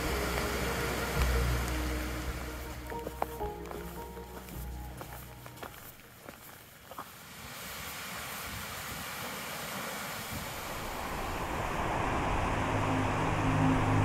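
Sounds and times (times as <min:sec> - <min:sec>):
low music drone: 0:00.0 - 0:05.8, 0:10.7 - 0:14.0
rushing wind: 0:07.3 - 0:14.0.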